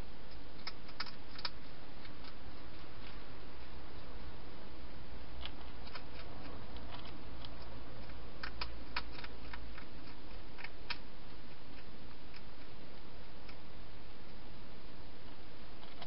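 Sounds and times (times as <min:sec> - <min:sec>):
hedgehog chewing crunches: 0:00.3 - 0:04.3, 0:05.3 - 0:13.7, 0:15.8 - 0:16.0.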